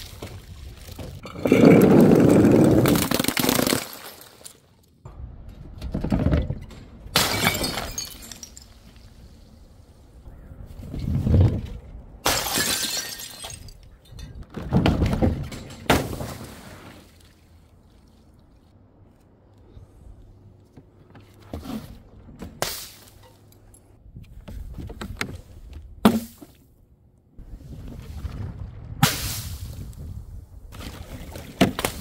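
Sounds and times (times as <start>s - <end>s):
rush of debris: 0.0s - 4.6s.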